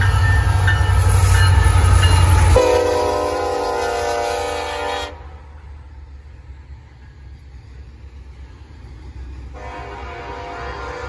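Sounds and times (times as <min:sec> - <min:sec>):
train rumbling: 0:00.0 - 0:11.0
locomotive air horn: 0:02.5 - 0:05.4, 0:09.5 - 0:11.0.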